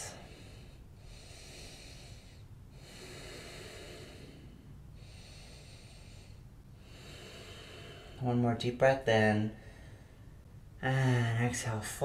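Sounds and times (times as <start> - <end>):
deep breathing through nose: 0.0 - 8.2.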